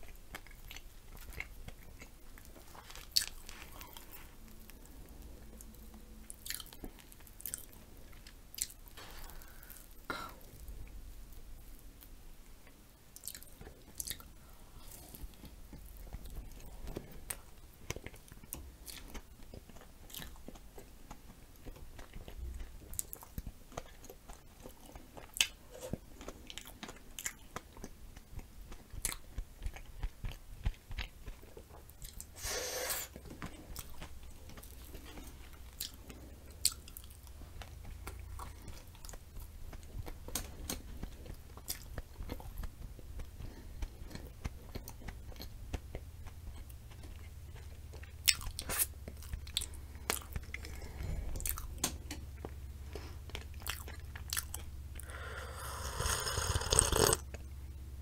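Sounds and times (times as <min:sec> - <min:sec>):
wet chewing sounds: 0:00.0 - 0:11.8, 0:12.6 - 0:57.4
finger licking suck: 0:55.0 - 0:57.2.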